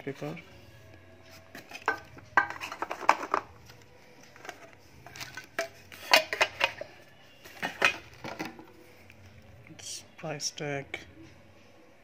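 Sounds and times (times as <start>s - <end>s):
metal tin clinking and knocking: 1.5s - 8.8s.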